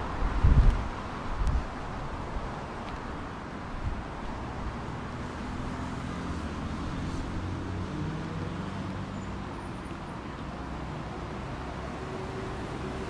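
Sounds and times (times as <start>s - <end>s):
passing cars rushing: 0.0s - 13.0s
vehicle engine humming by: 4.2s - 13.0s.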